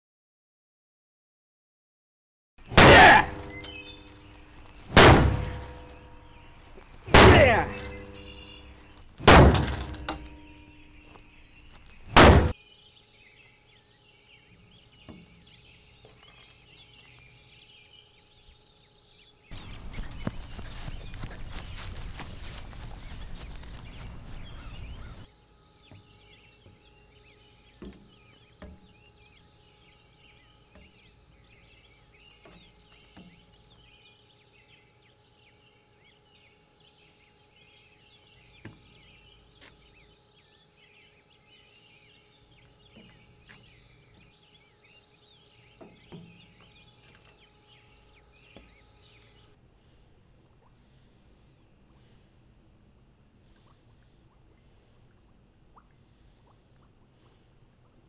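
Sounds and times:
dull thumps: 6.8 - 10.5, 12.0 - 12.5
insects chirping and trilling: 9.6 - 49.6.

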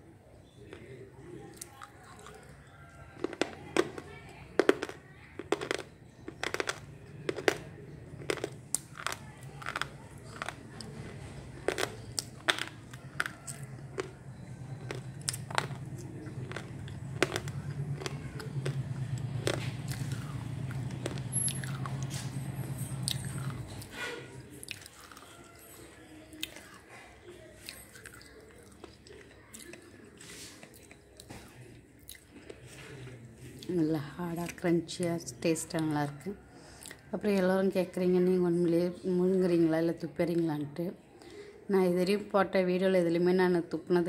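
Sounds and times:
hard crunches of biting: 3.2 - 22.4
steady low hum: 5.8 - 24.4.

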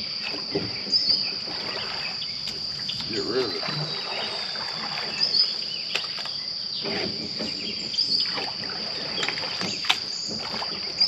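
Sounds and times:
high insect drone: 0.0 - 11.0
rake swishing through pond water: 0.2 - 11.0.

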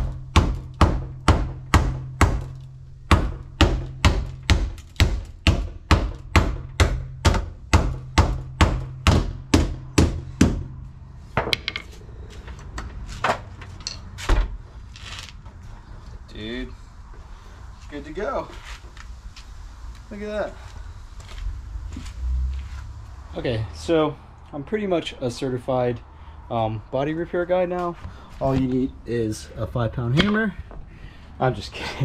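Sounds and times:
hammer pounding sheet metal: 0.0 - 10.8.

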